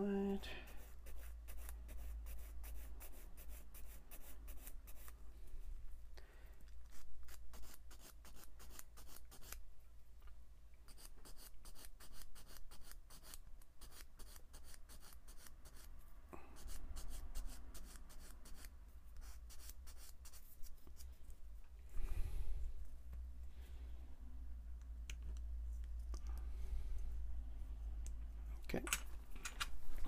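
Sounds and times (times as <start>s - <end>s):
sanding stick scratching plastic: 0.8s - 5.2s, 6.9s - 9.6s, 10.9s - 15.9s, 16.6s - 21.0s.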